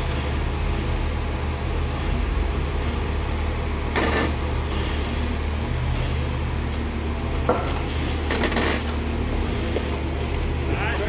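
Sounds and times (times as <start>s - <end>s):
car engine running low: 0.0s - 11.0s.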